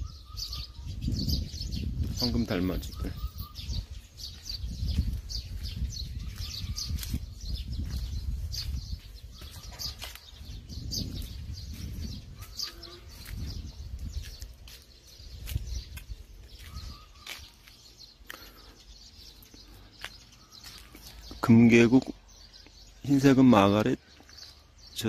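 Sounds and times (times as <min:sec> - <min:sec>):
low rumble on microphone: 0:00.0 - 0:17.0
birds chirping: 0:00.0 - 0:25.0.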